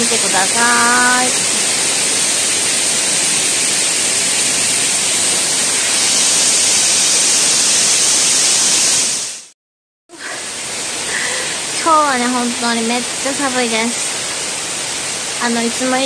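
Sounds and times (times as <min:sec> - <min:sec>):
waterfall rushing: 0:00.0 - 0:09.5, 0:10.2 - 0:16.0.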